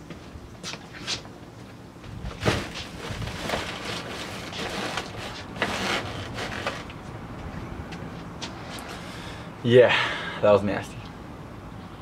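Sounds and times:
plastic trash bag rustling: 2.3s - 6.9s.

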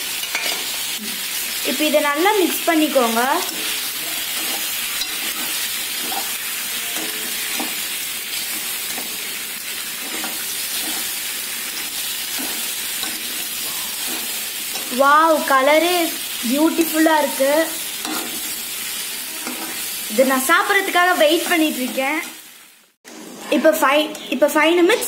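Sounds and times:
food sizzling in a metal pan: 0.0s - 25.0s.

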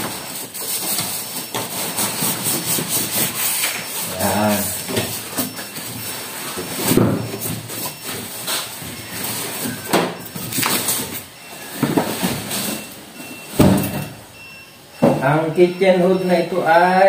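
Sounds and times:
plastic wrap and styrofoam handled: 0.0s - 13.7s.

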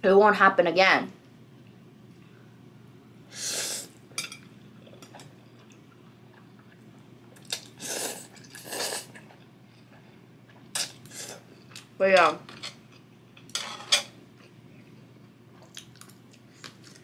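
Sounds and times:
person slurping noodles: 7.6s - 9.1s.

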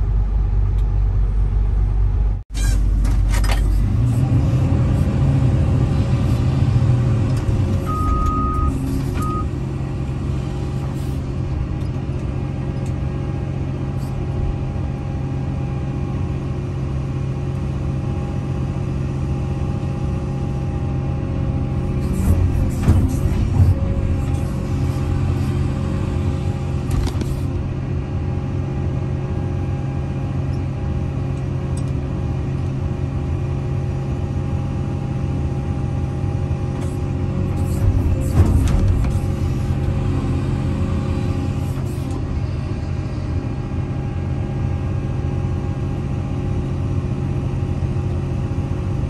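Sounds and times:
excavator diesel engine running: 0.0s - 49.0s
short electronic beeps: 7.8s - 9.5s.

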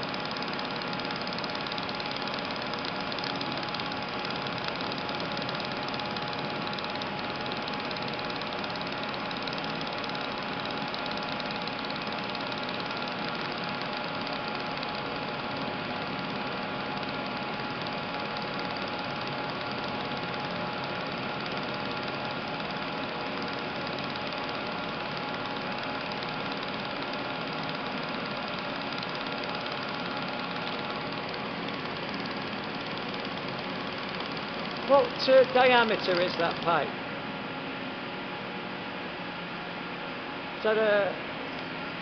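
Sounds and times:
faint steady whine: 0.0s - 42.0s
welding arc hissing: 34.8s - 36.9s.

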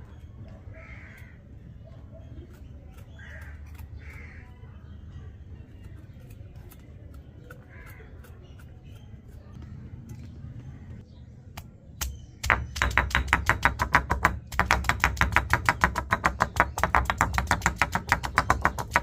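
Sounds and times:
crows cawing: 0.8s - 1.4s.

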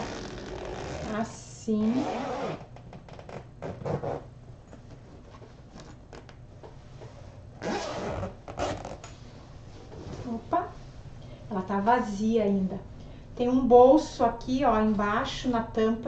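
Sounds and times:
zipper pulled open: 0.0s - 4.3s, 5.7s - 6.3s, 7.6s - 9.1s.

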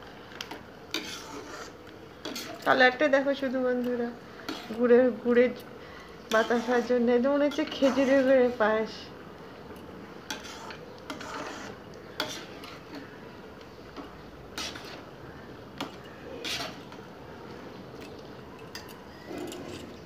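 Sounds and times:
metal spatula scraping a pan: 0.9s - 3.0s, 4.2s - 5.1s, 6.2s - 8.6s, 10.2s - 13.2s, 14.0s - 15.1s, 15.8s - 17.0s.

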